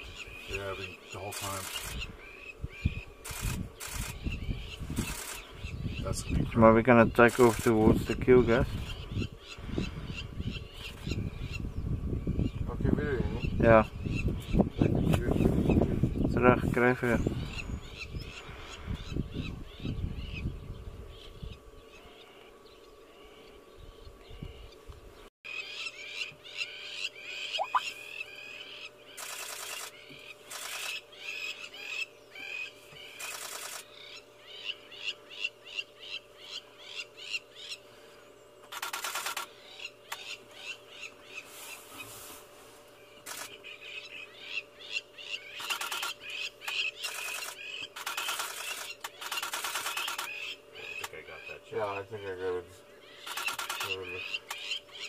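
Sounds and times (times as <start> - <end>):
lapwings calling: 0.0 - 11.7, 25.5 - 42.3, 43.0 - 55.0
rapid clicks: 45.6 - 50.4, 53.3 - 54.6.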